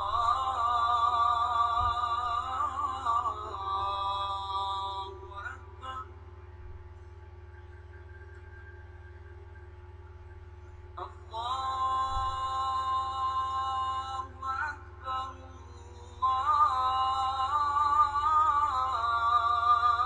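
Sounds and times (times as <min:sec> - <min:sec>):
person singing melody: 0:00.0 - 0:06.1, 0:11.0 - 0:20.0
steady low hum: 0:00.0 - 0:20.0.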